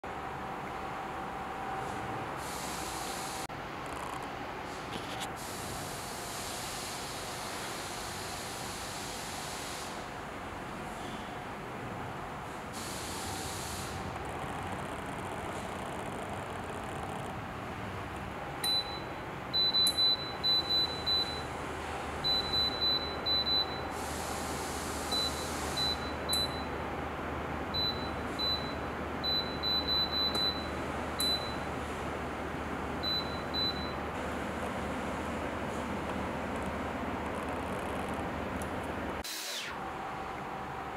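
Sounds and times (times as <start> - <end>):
electric fan heater blowing air: 0.1 - 40.9
faint constant whine: 0.1 - 40.9
control panel beeps: 18.6 - 21.4, 22.2 - 23.9, 27.8 - 31.6, 33.0 - 34.0.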